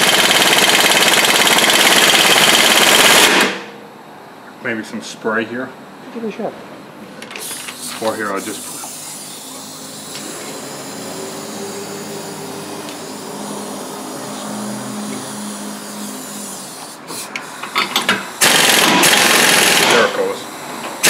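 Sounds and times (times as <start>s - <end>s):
pneumatic impact wrench hammering: 0.0s - 3.7s, 7.2s - 12.2s, 15.3s - 20.3s
steady background hum: 2.5s - 21.0s.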